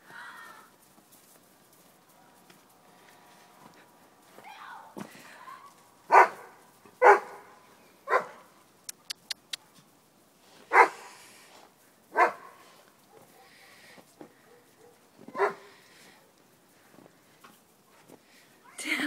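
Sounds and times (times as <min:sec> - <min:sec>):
dog barking: 0:06.1 - 0:08.5, 0:10.7 - 0:11.1, 0:12.1 - 0:13.8, 0:14.4 - 0:16.4
faint clicks: 0:08.8 - 0:09.8.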